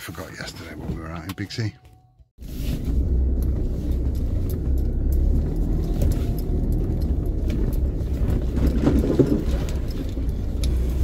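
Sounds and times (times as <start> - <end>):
truck engine and road drone: 2.4 - 11.0.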